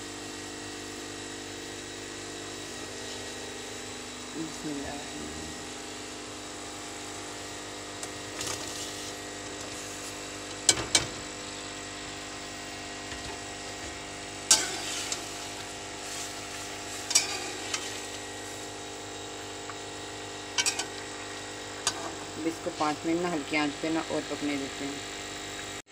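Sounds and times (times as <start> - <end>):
steady background hum: 2.6 - 25.0
steel utensils clinking and scraping: 14.5 - 15.2, 17.0 - 18.0, 20.6 - 20.9.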